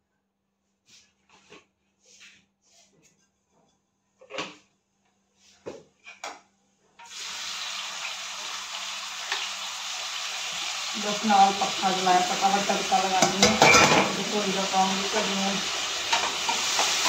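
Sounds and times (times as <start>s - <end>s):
food sizzling in hot oil: 7.0s - 17.0s.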